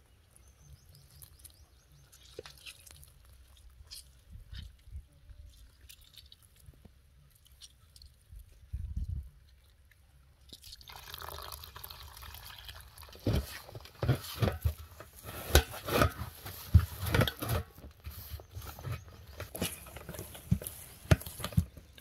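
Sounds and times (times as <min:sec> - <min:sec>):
hands squelching wet marinade: 0:00.3 - 0:08.7.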